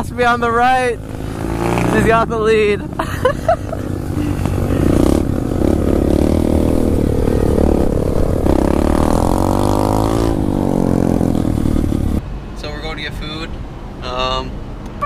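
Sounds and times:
motorbike engine revving: 0:00.9 - 0:12.2.

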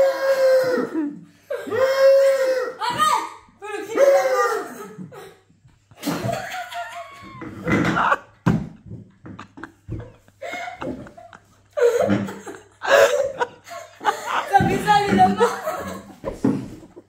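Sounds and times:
laughter: 0:05.9 - 0:17.0.

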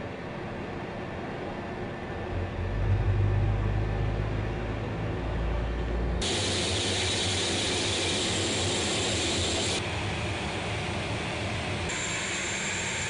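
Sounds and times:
jet engines running: 0:06.2 - 0:13.0.

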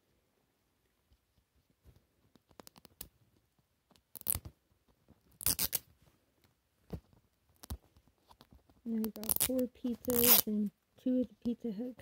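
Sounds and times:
fingers tearing plastic wrap: 0:05.3 - 0:05.8, 0:09.0 - 0:10.5.

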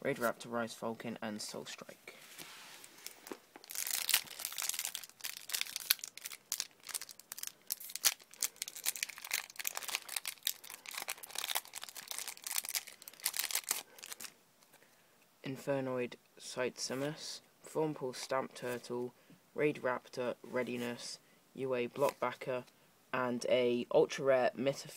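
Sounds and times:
foil wrapper crinkling and tearing: 0:03.0 - 0:14.3.

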